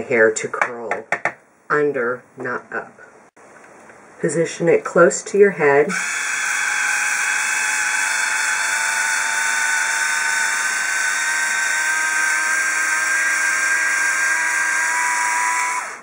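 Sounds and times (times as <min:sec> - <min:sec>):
hair styling iron motor whine: 0:05.9 - 0:16.0.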